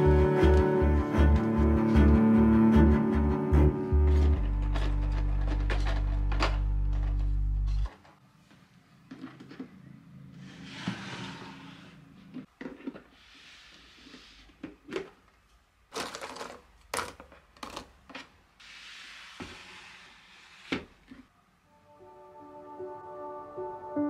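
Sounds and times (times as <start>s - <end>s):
rummaging rustles: 4.1s - 8.2s.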